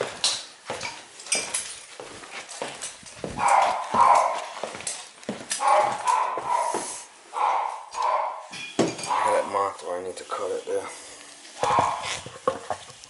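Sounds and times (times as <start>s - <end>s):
dog barking: 3.4s - 4.6s, 5.6s - 9.5s, 11.6s - 12.2s.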